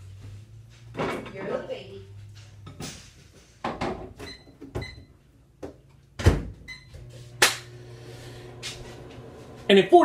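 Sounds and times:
microwave humming: 6.2s - 10.0s.

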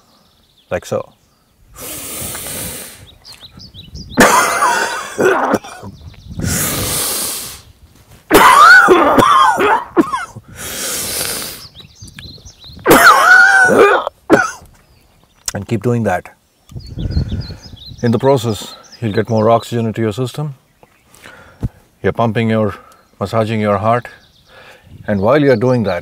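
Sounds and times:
man breathing in deeply: 1.7s - 3.1s, 6.4s - 7.7s, 10.4s - 11.7s, 21.1s - 21.8s, 24.4s - 25.0s
man coughing forcefully: 4.2s - 5.9s, 8.3s - 10.4s, 12.9s - 14.6s.

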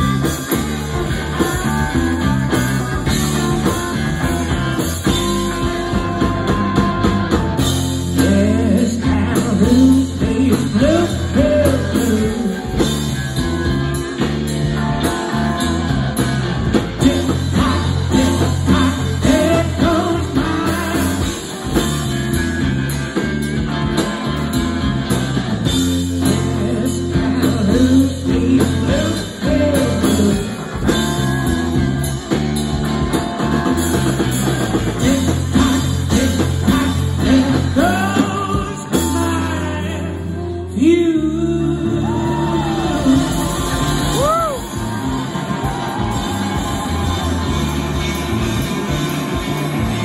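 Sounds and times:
blues-rock band playing: 0.0s - 50.0s.

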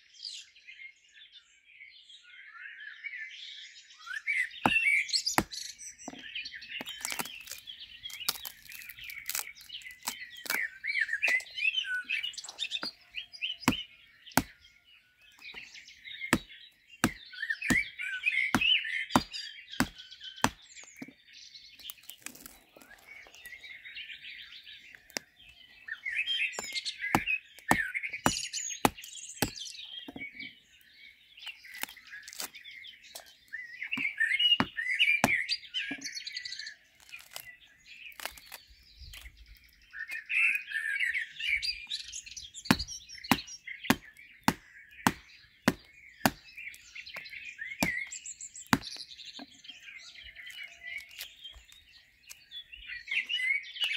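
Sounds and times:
small birds chirping: 0.0s - 53.9s
hand axe chopping on wood: 4.6s - 11.4s, 13.6s - 14.6s, 16.3s - 21.1s, 26.6s - 30.4s, 34.0s - 36.1s, 42.7s - 46.9s, 47.8s - 49.0s.

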